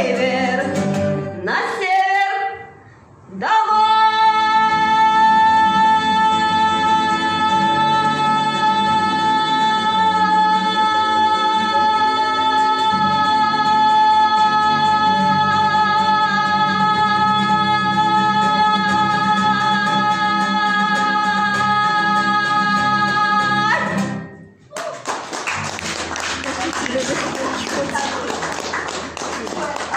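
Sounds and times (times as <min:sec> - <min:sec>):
strummed acoustic guitar: 0:00.0 - 0:01.5, 0:25.6 - 0:29.6
audience clapping: 0:24.7 - 0:29.9.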